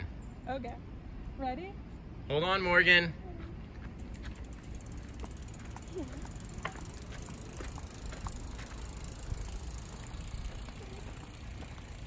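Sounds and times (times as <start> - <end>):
bicycle tyres rumbling on wet pavement: 4.2 - 12.0.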